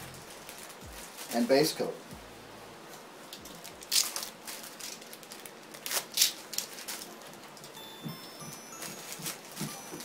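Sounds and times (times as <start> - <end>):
tack cloth crinkling and rustling: 0.2 - 1.9.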